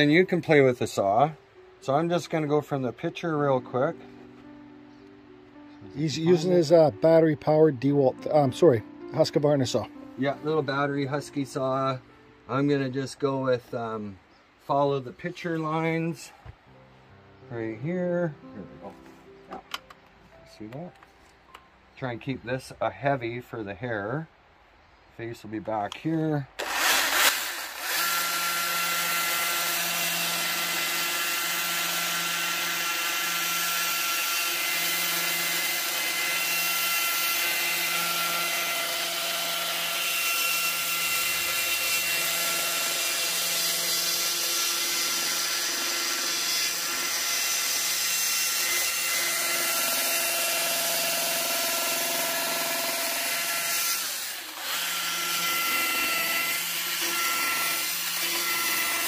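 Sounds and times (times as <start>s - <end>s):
electric chainsaw cutting wood: 26.6s - 59.0s.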